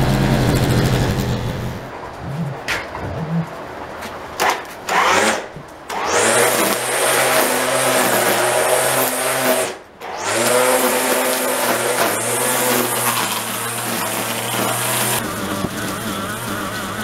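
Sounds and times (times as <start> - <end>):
string trimmer whirring: 4.4 - 17.0.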